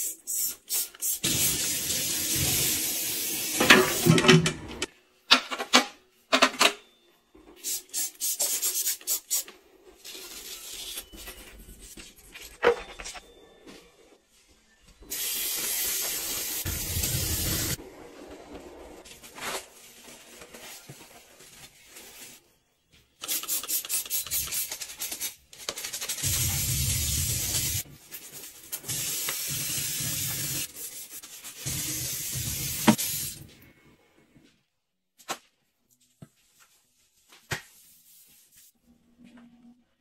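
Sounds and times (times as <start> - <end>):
clothes rubbing and rustling: 35.2 - 39.4.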